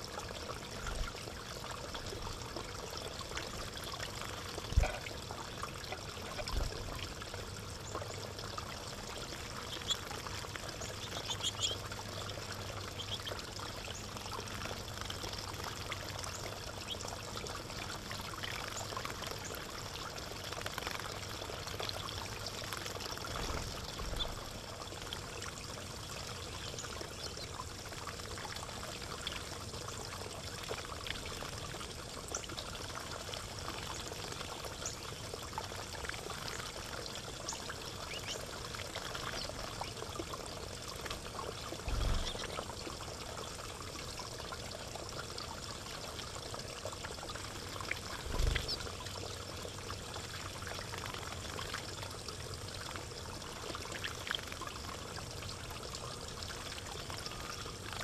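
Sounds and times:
water trickling into pond: 0.0s - 58.0s
birds splashing in water: 8.0s - 31.6s, 35.7s - 43.7s, 47.2s - 52.0s.

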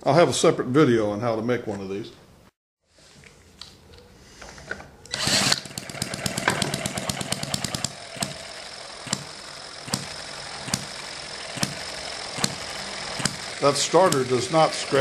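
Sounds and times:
cordless drill whir: 5.1s - 15.0s
flywheel coasting: 5.1s - 15.0s
model gas engine firing: 5.1s - 15.0s.

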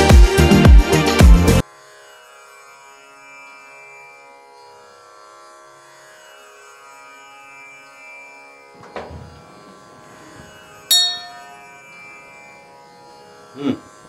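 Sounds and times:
meditative drone music: 7.0s - 14.0s
bright chime strike: 10.9s - 11.8s.

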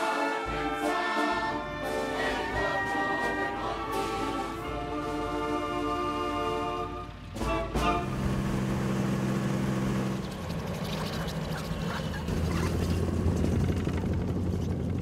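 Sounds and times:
honking tones: 0.0s - 8.7s
vehicle engine running: 1.4s - 15.0s
tracked snow vehicle clattering: 5.2s - 15.0s.

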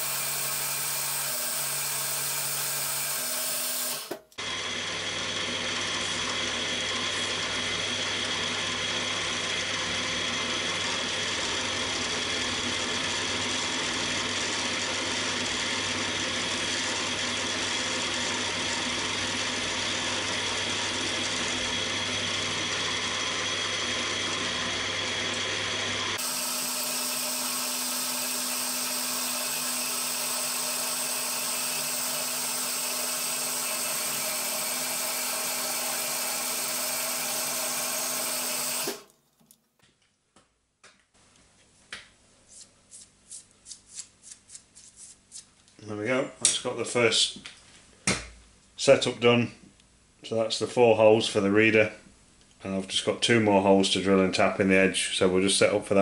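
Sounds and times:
drill motor and spindle whine: 0.0s - 39.1s.

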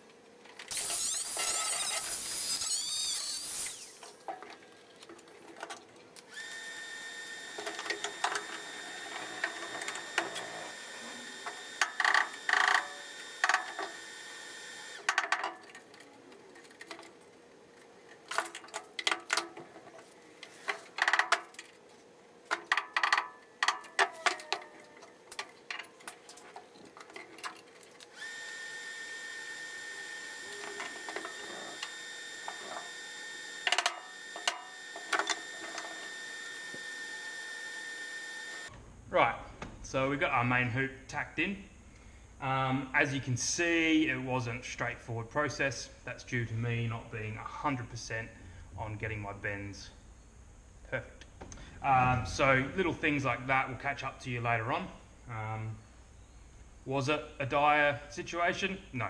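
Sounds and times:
high-pitched power tool: 0.7s - 4.2s, 6.3s - 15.0s, 28.1s - 38.7s
welding arc crackling: 0.7s - 4.2s
background hum: 38.5s - 59.0s.

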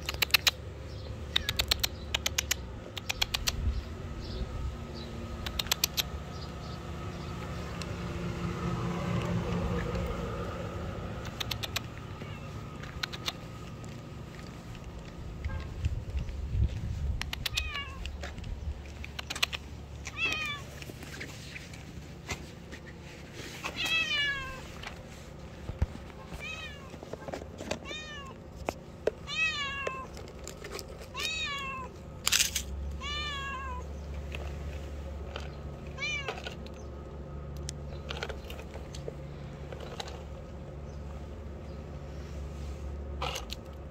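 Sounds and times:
cat meowing: 12.1s - 12.6s, 17.5s - 18.0s, 20.1s - 20.7s, 23.8s - 24.7s, 26.3s - 26.9s, 29.3s - 30.1s, 31.2s - 31.9s, 33.0s - 33.9s, 36.0s - 36.3s.

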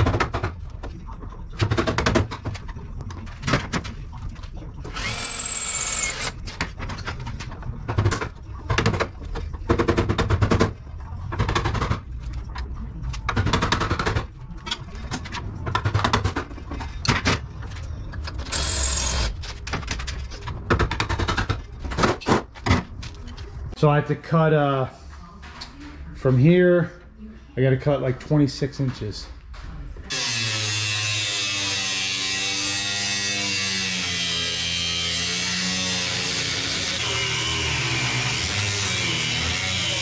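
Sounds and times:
power tool whining: 4.9s - 6.4s, 18.5s - 19.3s, 30.1s - 40.0s.

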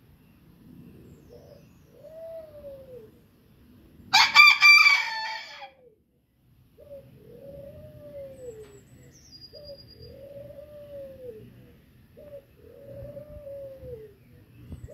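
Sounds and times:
low smooth cooing call: 0.8s - 3.4s, 6.8s - 14.9s
rooster crowing: 4.1s - 5.8s.

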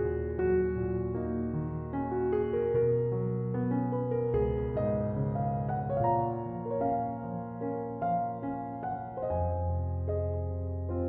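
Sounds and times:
gentle piano melody: 0.0s - 11.0s.

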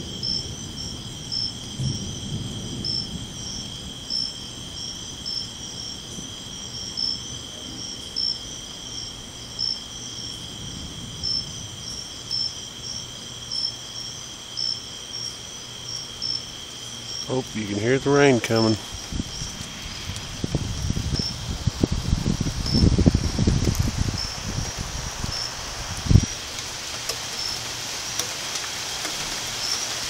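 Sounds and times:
thunder rumble: 0.0s - 8.2s, 10.2s - 12.4s, 17.1s - 30.0s
crickets trilling: 0.0s - 30.0s.

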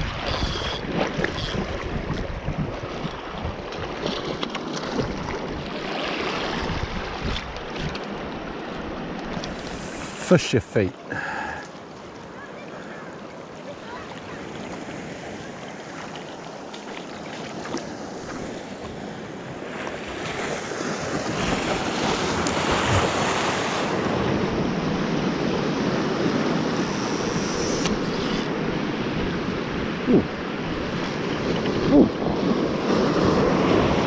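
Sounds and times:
wind on microphone: 0.0s - 4.4s, 6.4s - 8.0s, 26.1s - 34.0s
waves splashing over rocks: 0.0s - 34.0s.

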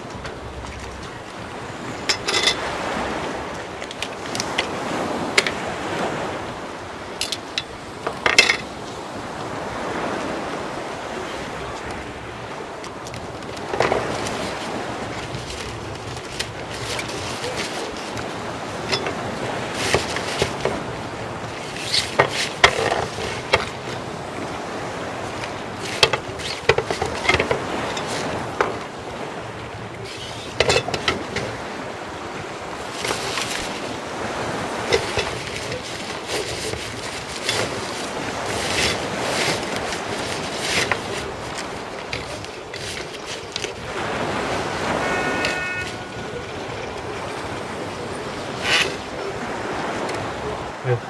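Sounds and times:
wind noise: 0.0s - 50.8s
plastic poles clicking and knocking: 19.8s - 20.8s, 21.7s - 24.0s, 25.4s - 28.9s, 30.2s - 31.6s, 34.8s - 43.8s.

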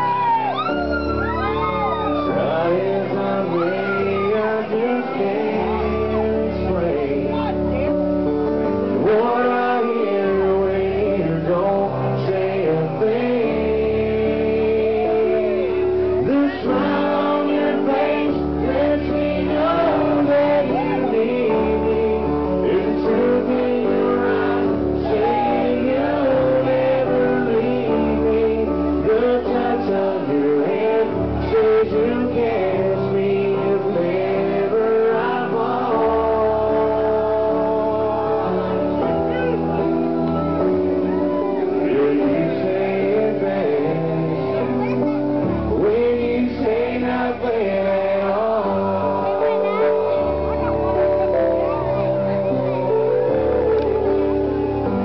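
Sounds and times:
country band playing ballad: 0.0s - 55.0s
man singing: 0.0s - 55.0s.

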